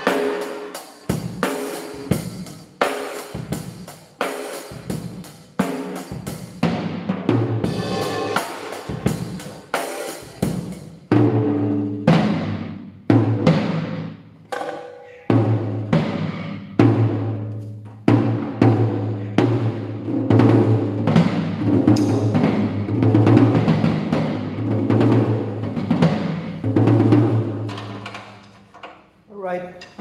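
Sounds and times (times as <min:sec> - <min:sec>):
cymbal crashes: 0:07.7 - 0:10.3.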